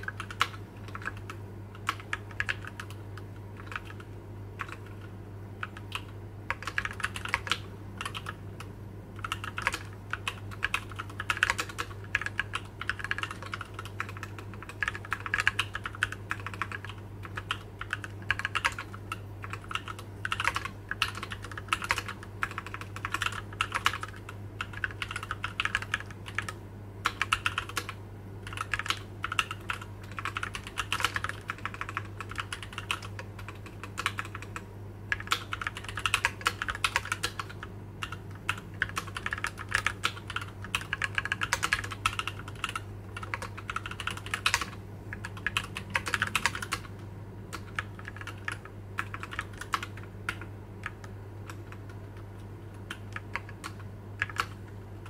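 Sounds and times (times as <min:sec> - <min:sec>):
mechanical keyboard typing: 0:00.0 - 0:54.8.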